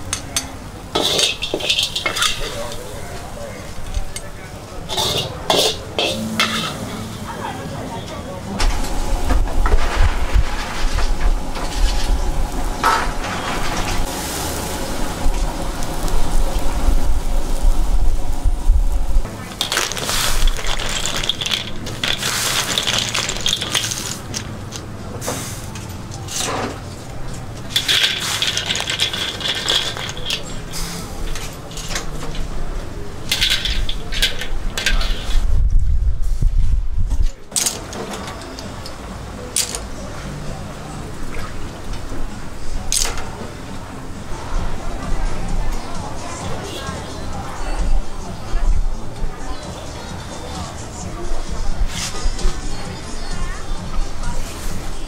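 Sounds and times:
clam shells clattering in mesh: 1.0 - 2.8, 19.4 - 24.9, 27.6 - 32.5, 33.3 - 35.3, 37.6 - 38.6
spatula scraping a wok: 1.0 - 2.9, 4.9 - 7.3.

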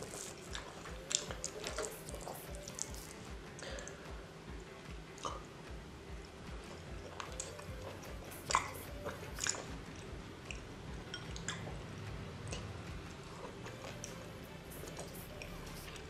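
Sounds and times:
wet chewing and mouth clicks: 0.0 - 4.0, 6.6 - 11.8, 12.4 - 16.0
background music: 0.0 - 16.0.

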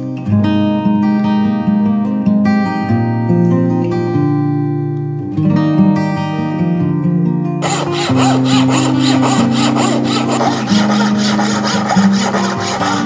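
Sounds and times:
acoustic guitar music: 0.0 - 13.0
bow saw cutting wood: 7.6 - 13.0.

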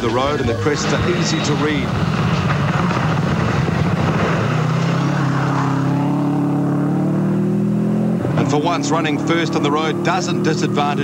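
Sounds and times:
tyres on gravel: 0.0 - 5.9
rally car engine at high revs: 0.0 - 11.0.

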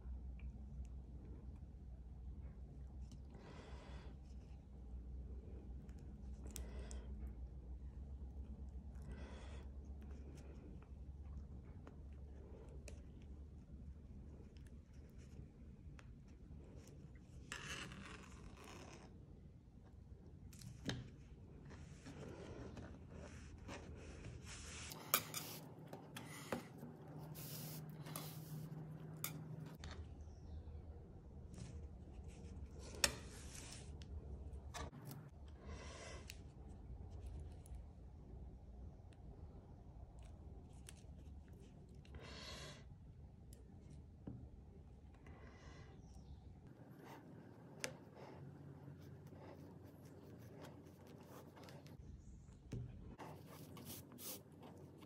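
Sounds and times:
cord rubbing through rope: 21.7 - 25.7.

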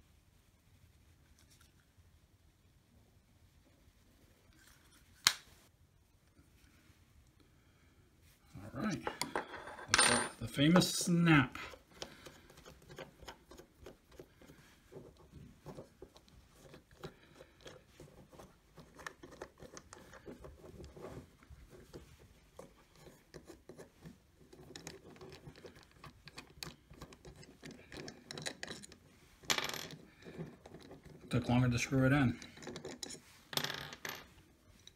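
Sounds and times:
tool clicks and scrapes on wood: 11.7 - 15.1.

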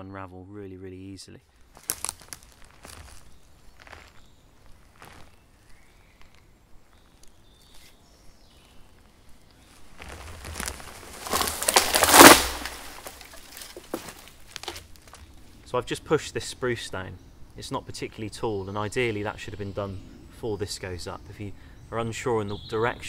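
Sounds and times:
tree branches and roots rushing: 1.5 - 15.6.

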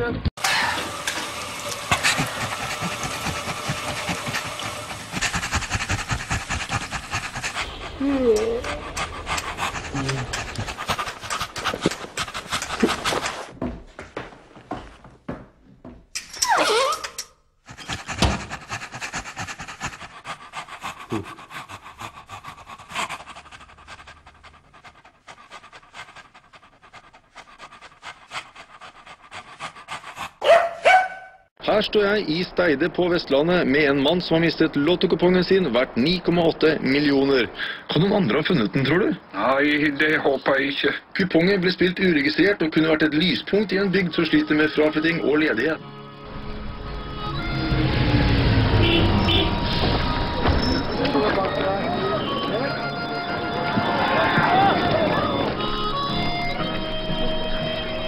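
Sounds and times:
dog panting: 1.1 - 15.2, 17.7 - 31.5, 41.8 - 45.7, 47.8 - 58.0.

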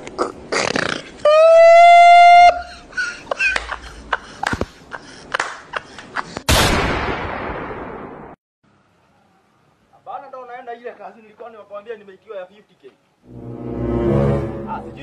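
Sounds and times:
horn-like blast: 13.3 - 15.0.

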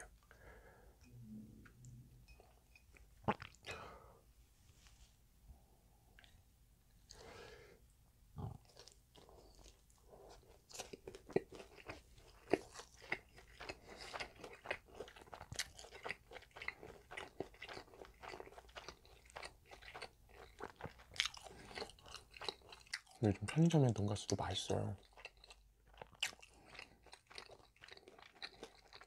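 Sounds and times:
crunching of fried food: 8.6 - 29.0.

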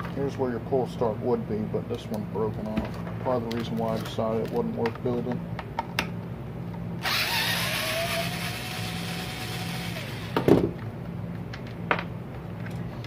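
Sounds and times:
cordless drill running: 7.0 - 10.5.

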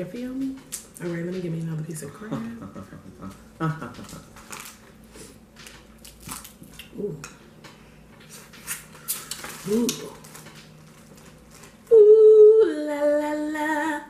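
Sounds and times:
crab shells cracking: 5.6 - 7.0.

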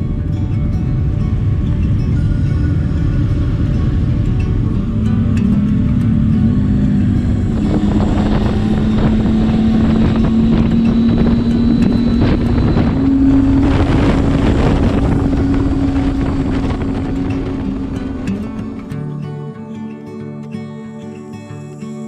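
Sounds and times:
motorcycle engine running: 0.0 - 19.2
wind rushing over microphone: 0.0 - 19.2.

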